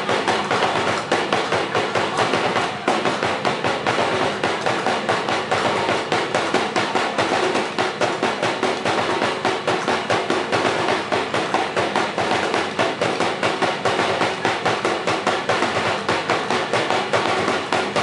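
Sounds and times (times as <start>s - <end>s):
percussion sharp knocks beat: 0.0s - 18.0s.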